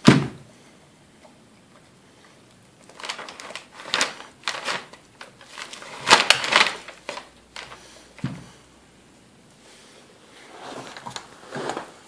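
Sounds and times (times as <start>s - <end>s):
paper crinkling: 2.8s - 7.9s.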